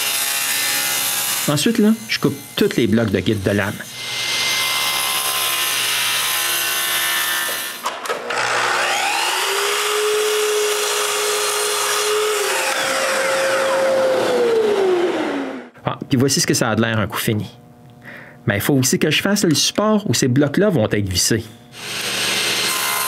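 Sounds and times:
table saw cutting hardwood: 0.0 - 15.8, 21.7 - 23.0
miter saw motor whining: 4.8 - 15.8.

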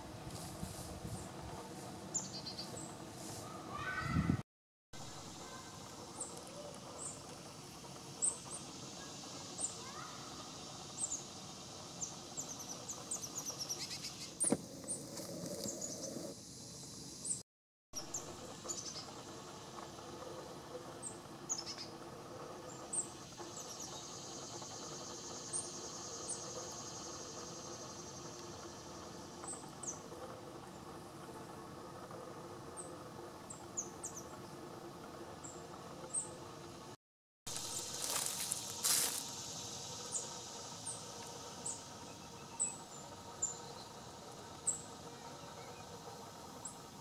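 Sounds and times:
songbird chip calls: 8.2 - 14.4, 21.0 - 22.0, 37.6 - 45.9.

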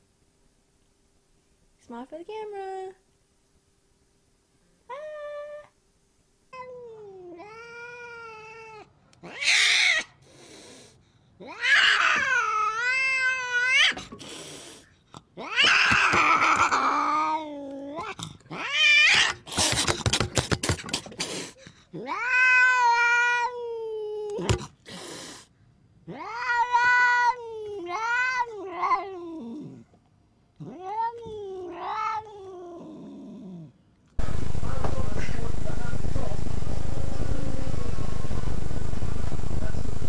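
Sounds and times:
cat yowling meows: 6.6 - 10.1, 11.4 - 14.0, 15.4 - 19.4, 22.0 - 24.5, 26.1 - 29.8, 30.6 - 33.7.

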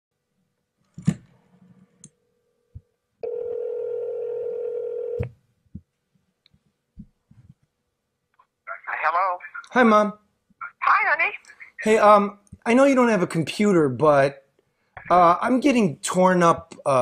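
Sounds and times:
telephone line tone: 3.2 - 5.3.

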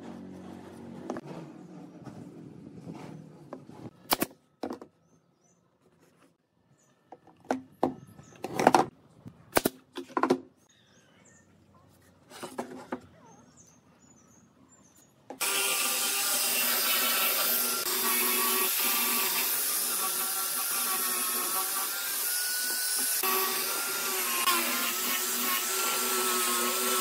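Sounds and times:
nail gun firing: 4.1 - 4.4
angle grinder whining: 15.4 - 27.0.

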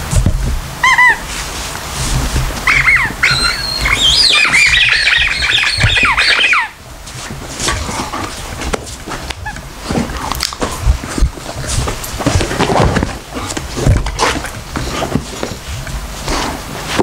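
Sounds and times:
squeaky dog toy squeaking: 0.8 - 1.2, 2.6 - 6.7.

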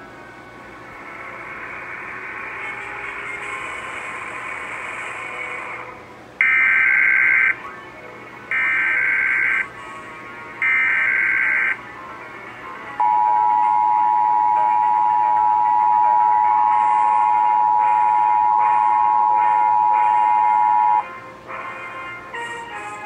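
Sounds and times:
tv program sound: 0.0 - 23.0
emergency alert data tones: 6.4 - 7.6, 8.5 - 9.7, 10.6 - 11.8, 13.0 - 21.0.

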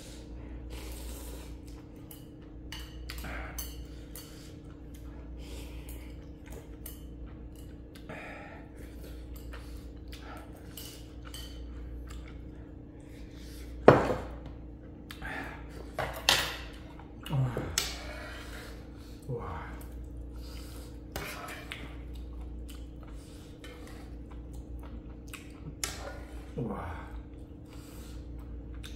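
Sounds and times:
utensils clinking on dish: 10.6 - 11.8.

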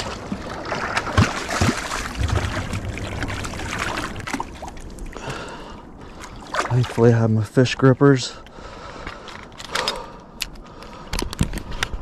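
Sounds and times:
water splashing against rocks: 0.0 - 7.2.

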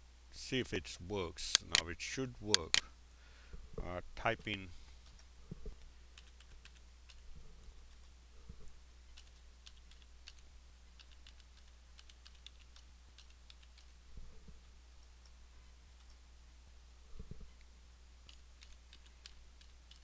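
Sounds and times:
steady low hum: 0.0 - 20.0
keyboard typing: 6.2 - 7.2, 9.1 - 13.9, 18.2 - 20.0.

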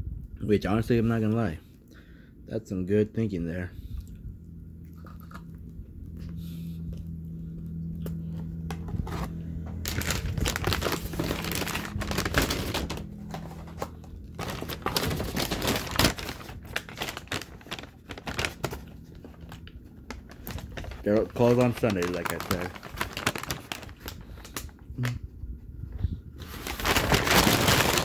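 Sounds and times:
paper bag crinkling: 8.8 - 25.2, 26.4 - 28.0.

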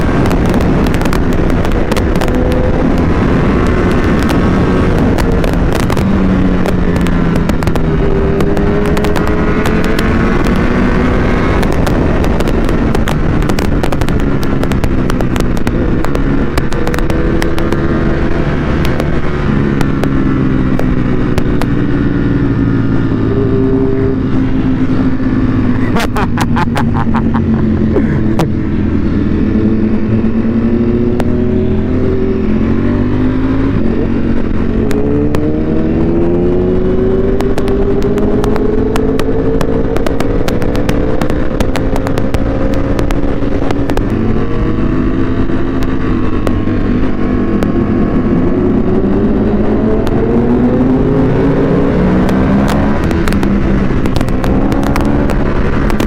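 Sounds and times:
crackling exhaust pops: 0.0 - 23.0, 24.5 - 28.7, 33.7 - 56.0
motorcycle engine revving: 0.0 - 56.0.

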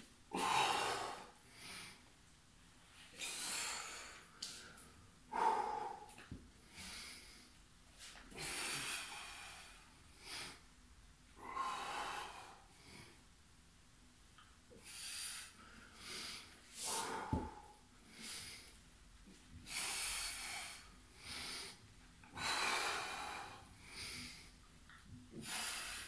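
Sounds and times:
man breathing hard: 0.3 - 2.1, 3.1 - 10.7, 11.4 - 13.2, 14.8 - 18.8, 19.6 - 24.7, 25.3 - 26.0.

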